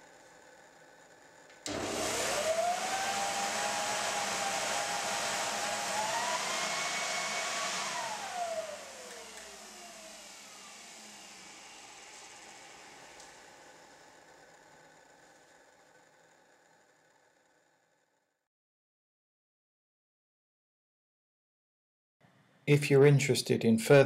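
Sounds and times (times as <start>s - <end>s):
turbine whine: 1.6s - 15.9s
rush of air from blower: 1.7s - 13.8s.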